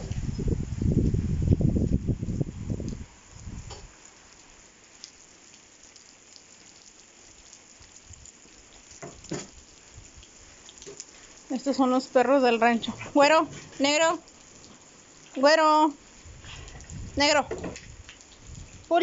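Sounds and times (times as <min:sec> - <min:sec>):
rain hissing: 0:00.0 - 0:19.0.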